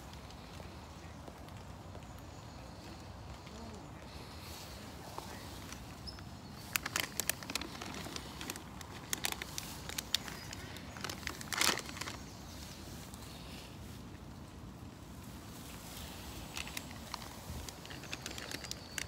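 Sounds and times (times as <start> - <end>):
close rustling: 0.0 - 19.0
sharp crackles: 0.0 - 19.0.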